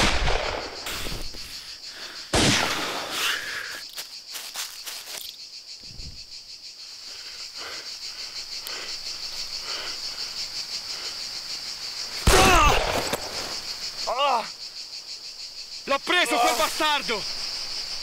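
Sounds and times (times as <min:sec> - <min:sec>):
loud revolver shot: 0:00.0 - 0:00.8, 0:02.3 - 0:03.2, 0:12.2 - 0:13.4
crickets chirring: 0:00.0 - 0:18.0.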